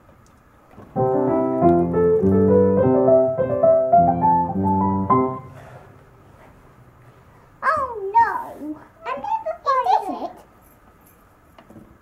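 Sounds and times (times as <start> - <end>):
piano tune: 0.8 - 6.3.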